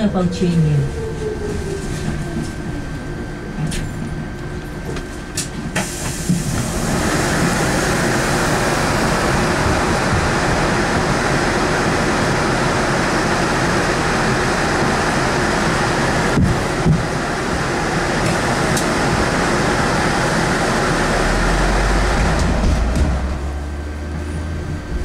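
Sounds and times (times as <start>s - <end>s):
electric bus motor whine: 0.0s - 25.0s
loud steady rushing noise: 6.6s - 25.0s.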